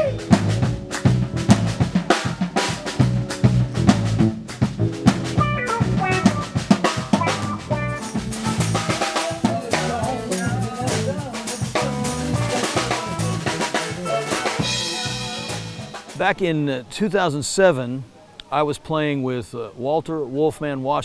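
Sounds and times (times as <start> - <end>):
electric bass notes: 0.0 - 2.2, 2.8 - 16.0
drum kit beat: 0.0 - 16.4.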